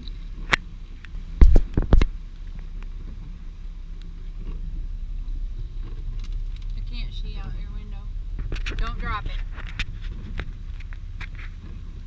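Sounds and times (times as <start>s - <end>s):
truck engine rumble: 0.0s - 12.0s
camera being knocked: 1.4s - 2.1s.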